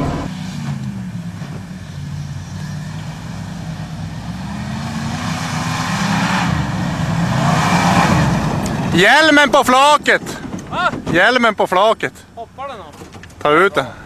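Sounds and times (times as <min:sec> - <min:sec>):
pickup truck engine revving: 0:00.0 - 0:10.6.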